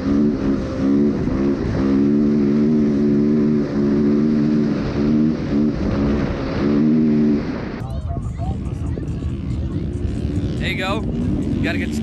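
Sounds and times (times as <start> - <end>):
dirt bike engine revving: 0.0 - 7.8.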